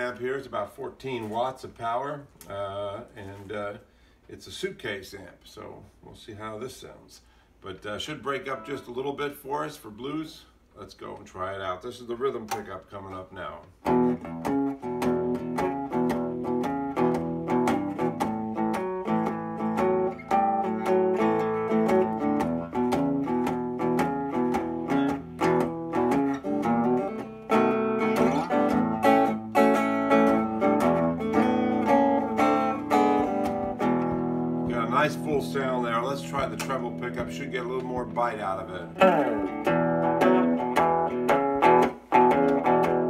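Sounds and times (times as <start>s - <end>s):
electric guitar blues run: 13.9s - 43.0s.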